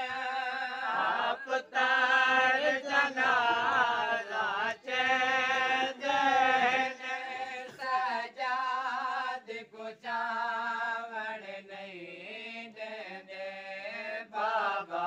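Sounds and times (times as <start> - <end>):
man chanting a lament: 0.0 - 9.4.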